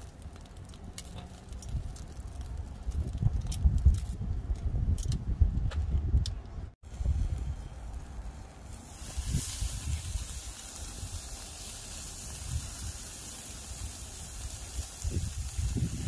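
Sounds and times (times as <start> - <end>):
meat sizzling on a grill: 6.9 - 16.0.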